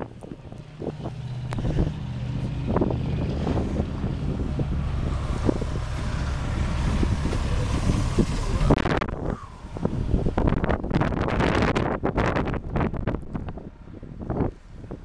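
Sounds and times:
truck driving past: 0:00.0 - 0:11.6
car engine humming: 0:00.0 - 0:15.0
wind buffeting microphone: 0:00.0 - 0:15.0.

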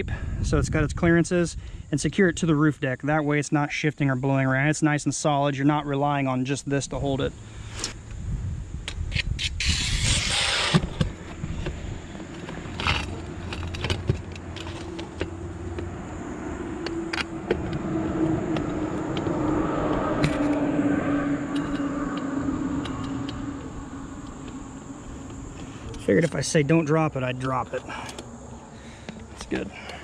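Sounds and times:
engine hum: 0:07.0 - 0:30.0
metal clicks and scrapes: 0:08.9 - 0:15.3
scraping rustle: 0:09.1 - 0:15.4.

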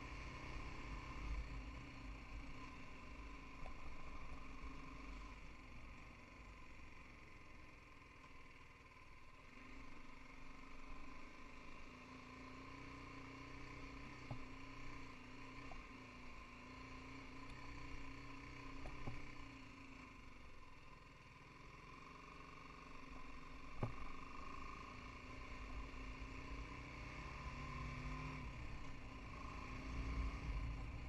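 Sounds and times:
faint motorcycle engine running: 0:00.0 - 0:31.0
motorcycle knocking on rough track: 0:14.1 - 0:14.8, 0:18.8 - 0:19.3, 0:23.2 - 0:24.7.

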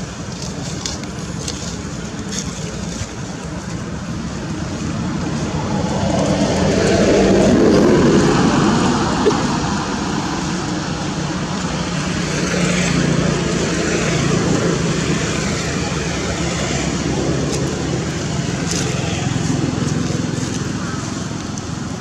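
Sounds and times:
vehicle engine running: 0:00.0 - 0:22.0.

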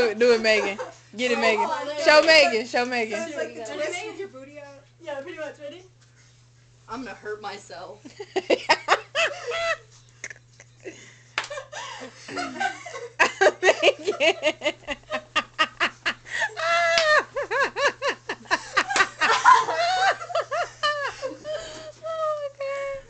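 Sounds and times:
women laughing: 0:00.4 - 0:01.6, 0:08.0 - 0:23.0.

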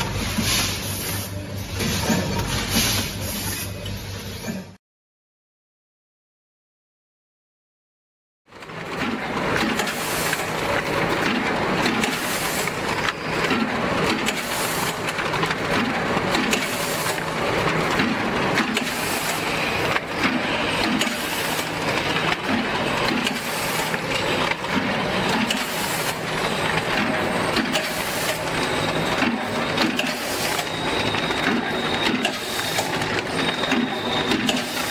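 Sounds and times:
packing machine clattering: 0:08.5 - 0:34.9
sharp mechanical clicks and knocks: 0:08.6 - 0:34.9.

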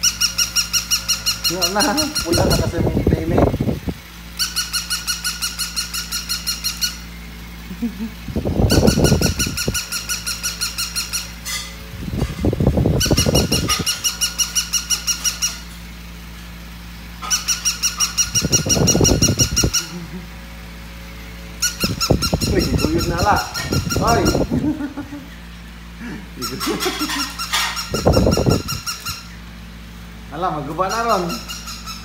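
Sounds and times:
toy dog electronic yapping: 0:00.0 - 0:02.7, 0:04.3 - 0:07.1, 0:08.7 - 0:11.4, 0:13.0 - 0:15.7, 0:17.2 - 0:19.8, 0:26.4 - 0:29.3, 0:31.0 - 0:32.0.

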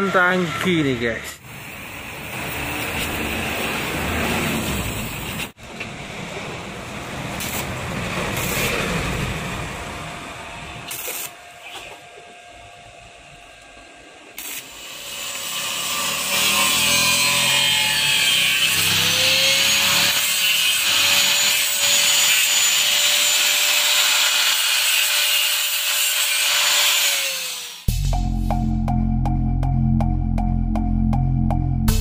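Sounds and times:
angle grinder grinding steel: 0:10.8 - 0:12.3, 0:14.3 - 0:27.9
music: 0:27.9 - 0:32.0.

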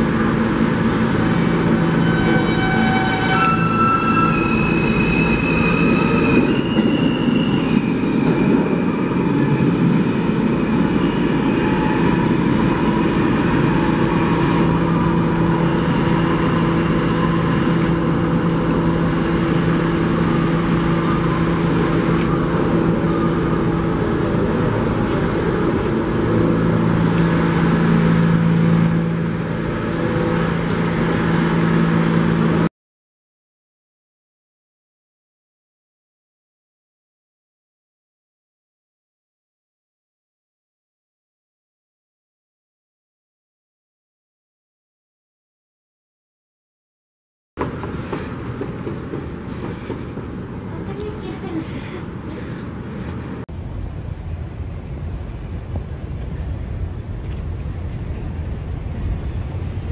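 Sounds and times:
running train rumble: 0:00.0 - 0:32.7, 0:47.6 - 0:59.9
subway train motor whine: 0:00.0 - 0:32.7, 0:47.6 - 0:59.9.

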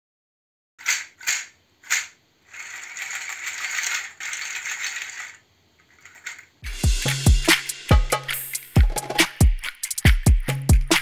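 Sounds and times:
seed shell shaker rattling: 0:00.8 - 0:06.7
drum beat: 0:06.6 - 0:11.0.

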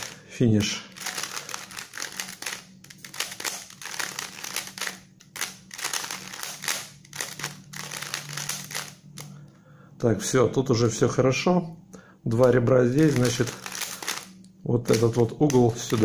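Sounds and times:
puzzle cube plastic layers clicking: 0:01.0 - 0:09.3, 0:12.4 - 0:14.3.

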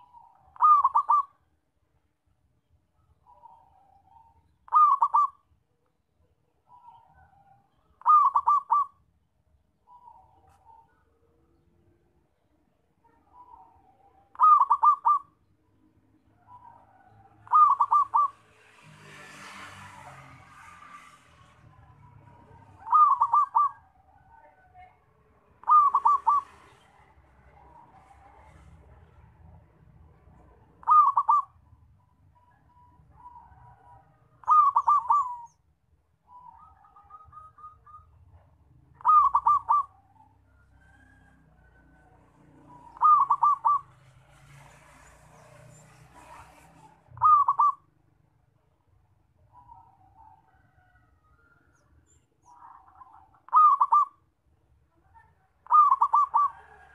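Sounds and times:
dove cooing: 0:00.0 - 0:01.4, 0:03.3 - 0:05.5, 0:06.7 - 0:09.0, 0:13.3 - 0:15.4, 0:16.5 - 0:18.4, 0:22.4 - 0:24.2, 0:25.5 - 0:26.8, 0:30.6 - 0:31.8, 0:32.4 - 0:35.6, 0:39.0 - 0:41.8, 0:42.6 - 0:44.2, 0:45.8 - 0:47.9, 0:52.5 - 0:54.3, 0:55.6 - 0:56.9.

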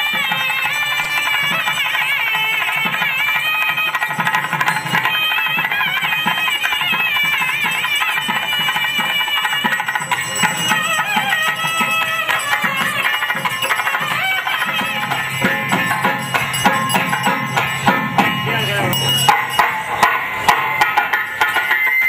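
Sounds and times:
steady drum beats: 0:00.0 - 0:22.0
high sliding melody: 0:09.8 - 0:20.4.

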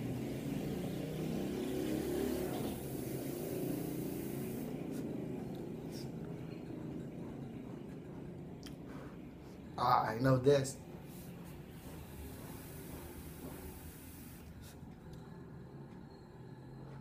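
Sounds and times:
low background rumble: 0:00.0 - 0:17.0
breathy vapour exhale: 0:01.9 - 0:05.2.

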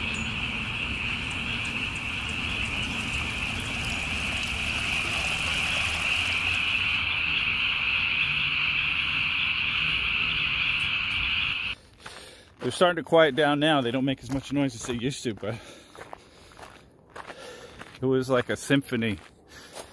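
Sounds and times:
tree frogs calling: 0:00.0 - 0:11.8.

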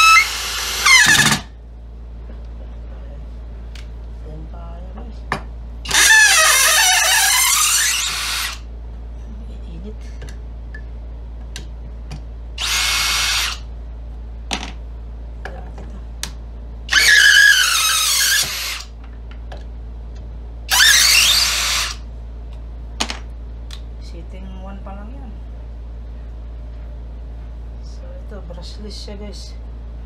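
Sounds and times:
cordless drill driving screw into wood: 0:00.0 - 0:01.5, 0:05.9 - 0:08.6, 0:12.6 - 0:13.6, 0:16.9 - 0:18.9, 0:20.7 - 0:22.0.

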